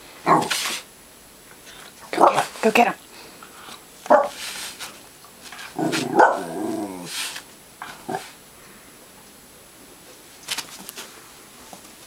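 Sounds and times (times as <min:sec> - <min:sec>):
dog barking: 0:02.2 - 0:02.5, 0:04.1 - 0:04.4, 0:06.0 - 0:06.6.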